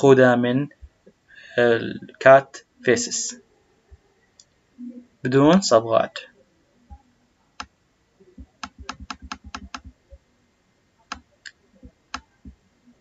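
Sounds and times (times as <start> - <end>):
computer keys clicking: 8.4 - 10.0, 11.1 - 12.6.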